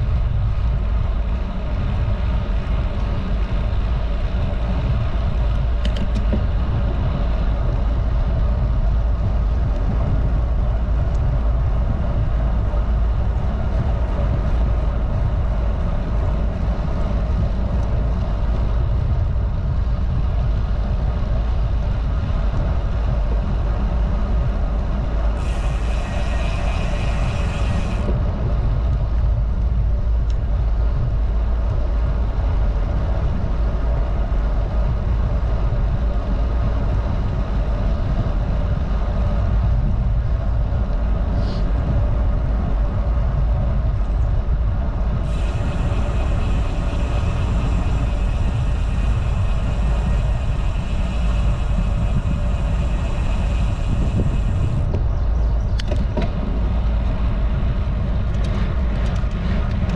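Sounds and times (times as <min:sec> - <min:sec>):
wind rushing over microphone: 0:00.0 - 0:59.9
bright hiss: 0:25.4 - 0:28.1, 0:45.3 - 0:54.9.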